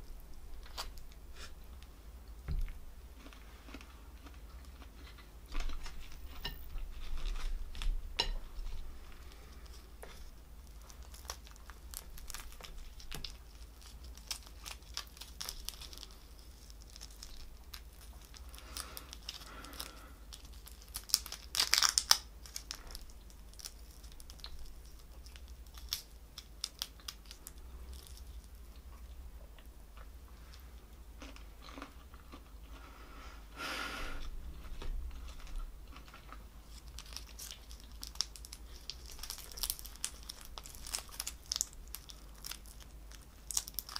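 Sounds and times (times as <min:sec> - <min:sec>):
chewing: 0:02.6 - 0:08.4, 0:31.2 - 0:33.0
prawn shells cracking and tearing: 0:10.6 - 0:28.5, 0:35.4 - 0:43.9.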